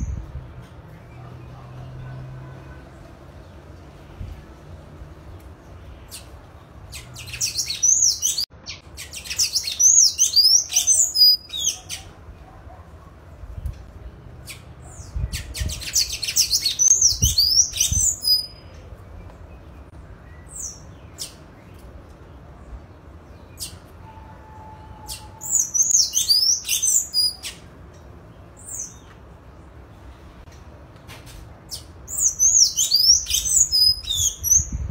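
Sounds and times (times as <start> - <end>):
bird twittering: 25.0 - 27.6, 32.1 - 34.7.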